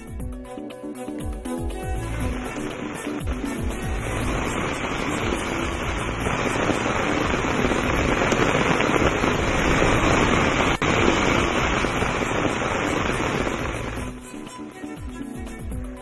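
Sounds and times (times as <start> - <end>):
heavy rain pouring: 1.8 - 14.5.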